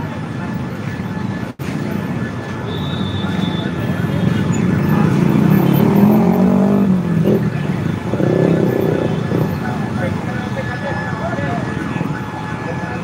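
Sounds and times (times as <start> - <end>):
motorcycle and car engines: 0.0 - 13.0
vehicle accelerating past: 4.6 - 9.5.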